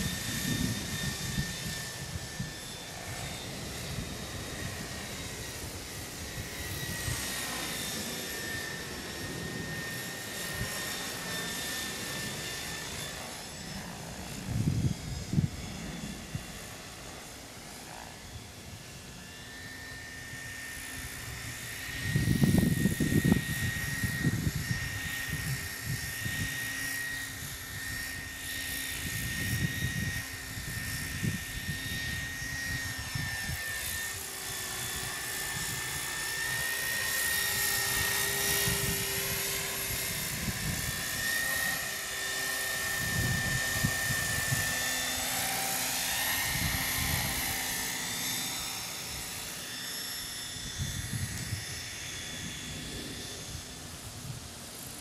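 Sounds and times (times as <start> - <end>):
rc helicopter motor whine: 0.0 - 55.0
rotor blade noise: 0.0 - 55.0.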